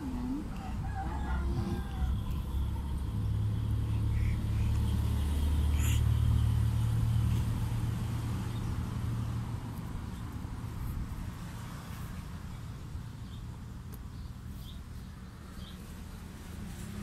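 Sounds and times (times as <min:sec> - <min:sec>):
low steady rumble: 0:00.0 - 0:04.3.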